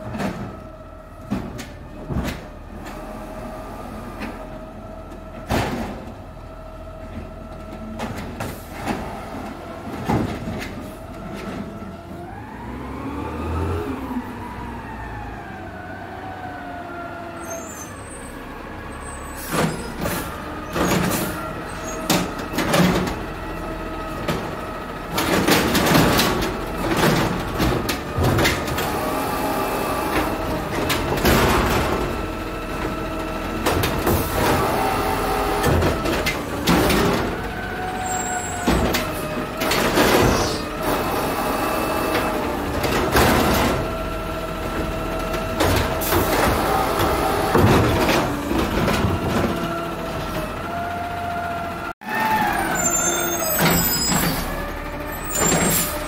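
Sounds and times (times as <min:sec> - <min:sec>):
garbage truck engine running: 0:00.0 - 0:56.0
hydraulic arm clanks and knocks: 0:44.7 - 0:50.6.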